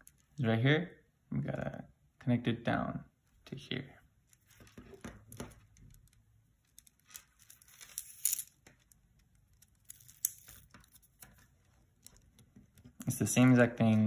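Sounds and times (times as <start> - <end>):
string rasping through beads: 4.2 - 14.0
plastic beads clicking: 5.3 - 13.0.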